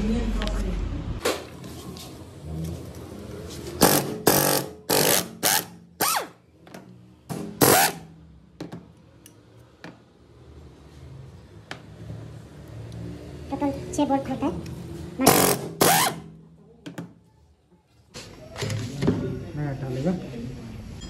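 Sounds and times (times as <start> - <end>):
air impact wrench hammering: 3.8 - 6.3, 15.2 - 16.3.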